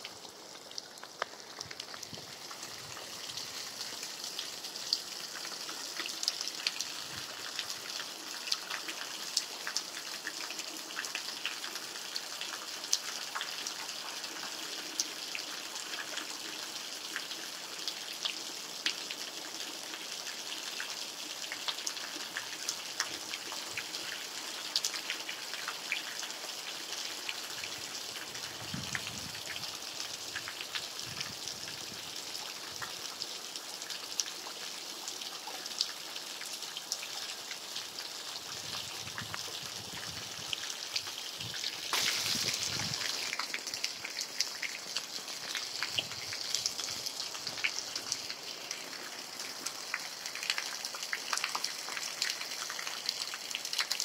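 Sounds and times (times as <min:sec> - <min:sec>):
raindrops ticking: 0:00.0 - 0:13.9, 0:39.1 - 0:54.0
rain falling: 0:00.0 - 0:54.0.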